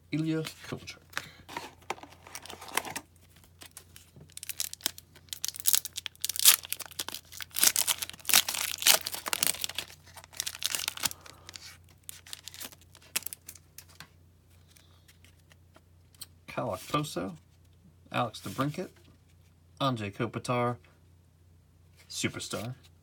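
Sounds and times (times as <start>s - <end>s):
foil wrapper tearing and crinkling: 3.6s - 13.6s.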